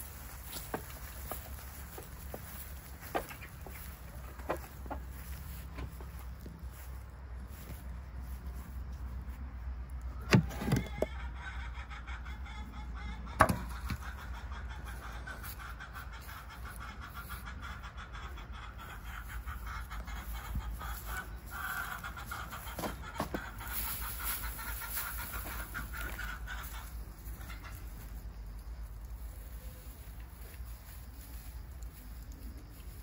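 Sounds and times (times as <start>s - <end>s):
footsteps on grass: 0.0s - 9.4s, 19.1s - 33.0s
chickens clucking: 0.0s - 33.0s.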